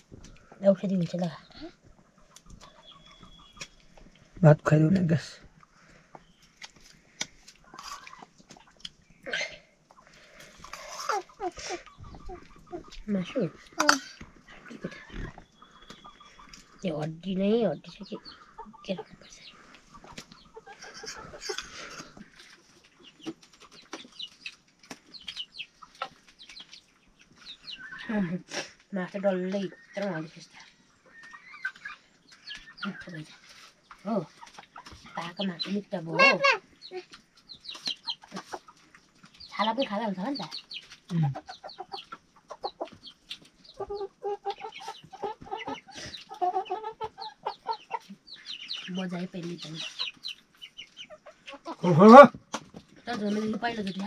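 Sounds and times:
chickens clucking: 0.0s - 54.0s
chicks peeping: 0.0s - 54.0s
short chirping calls: 2.6s - 4.0s.

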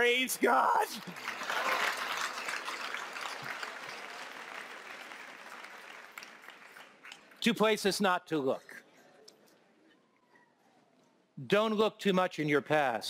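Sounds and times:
congregation applauding: 0.0s - 7.7s.

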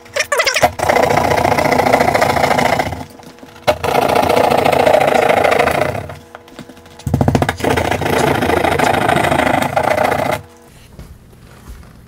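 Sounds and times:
hand saw rasping through drywall: 0.6s - 6.2s, 7.4s - 10.5s.

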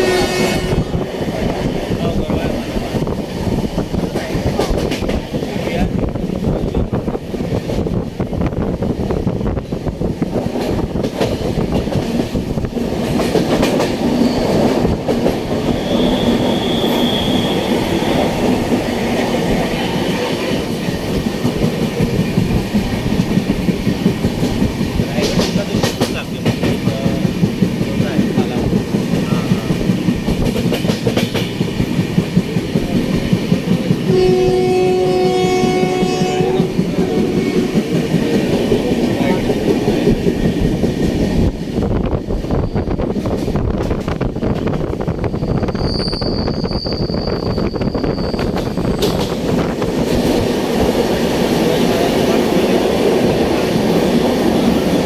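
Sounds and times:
train horn: 0.0s - 1.0s, 34.1s - 37.8s
train wheels clacking on rails: 0.0s - 46.4s, 47.2s - 55.0s.

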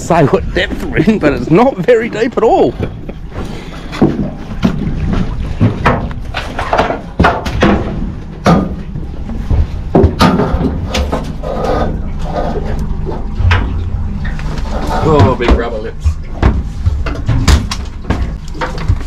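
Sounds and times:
fish knocking against hull: 3.9s - 11.4s, 15.1s - 19.0s.

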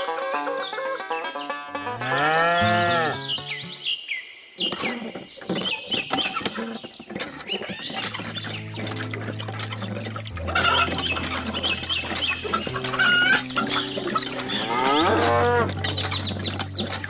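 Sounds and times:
cow mooing: 2.0s - 3.3s, 14.4s - 16.0s
clicks and rustling: 4.6s - 17.0s.

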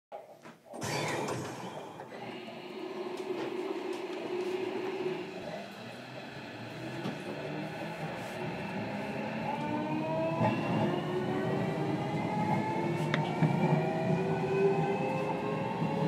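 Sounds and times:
hum of train equipment: 0.8s - 16.0s
rising electric motor whine: 0.9s - 16.0s.

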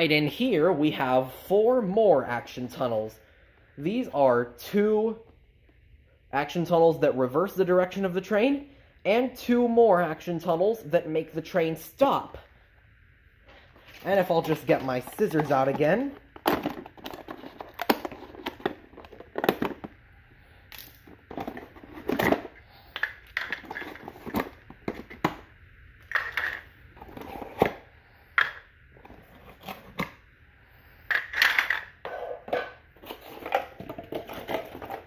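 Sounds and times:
plastic pieces knocking on tile floor: 23.0s - 25.4s.

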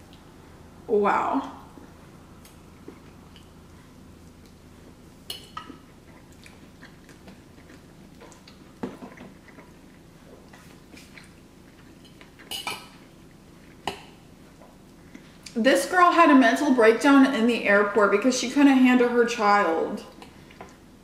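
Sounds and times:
soft chewing: 1.6s - 15.6s, 20.1s - 21.0s.

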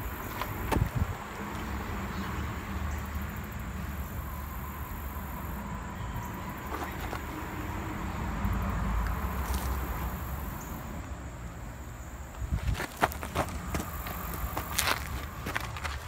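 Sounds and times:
footsteps on gravel: 9.4s - 9.9s, 12.3s - 16.0s.

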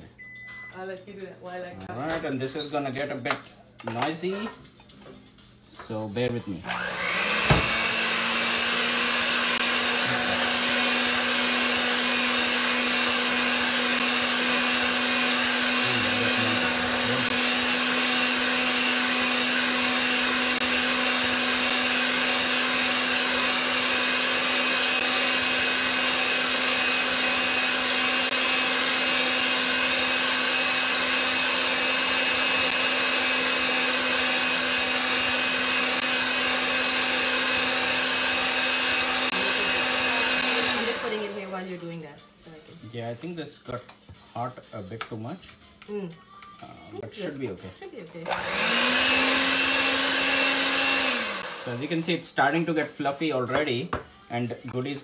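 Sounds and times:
electric hand mixer whining: 6.6s - 42.1s, 48.0s - 53.5s.

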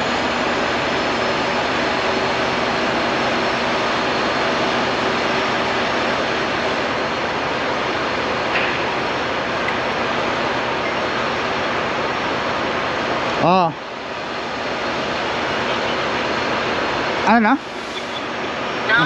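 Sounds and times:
machine rushing drone: 0.0s - 13.2s.

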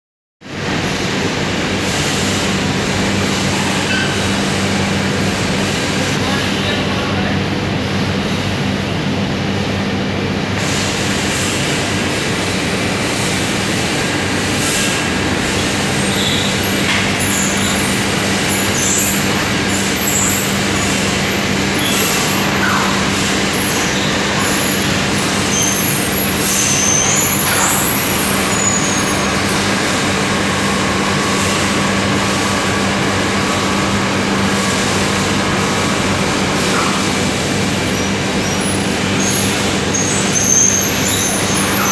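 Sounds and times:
short high squeaks: 16.0s - 29.5s.

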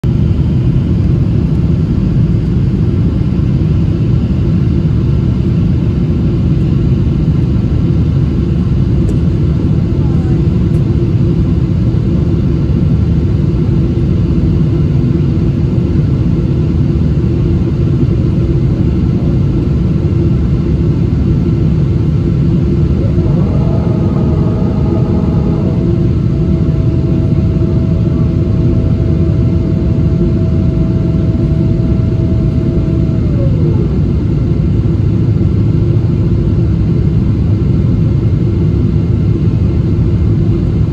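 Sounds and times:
airplane cabin rumble: 0.0s - 40.9s
faint high tone: 22.9s - 34.2s.

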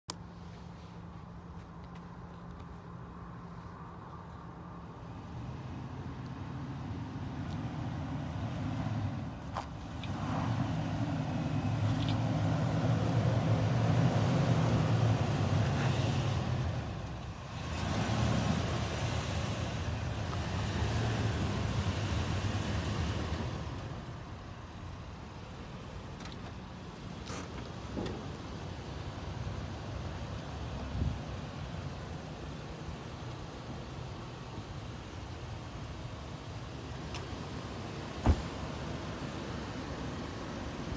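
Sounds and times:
engine working under load: 4.9s - 40.9s.

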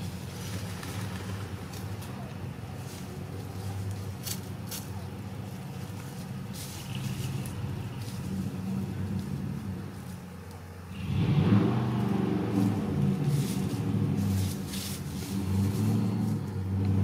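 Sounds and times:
dry leaves rustling: 0.0s - 17.0s
low rumble: 6.6s - 10.1s.

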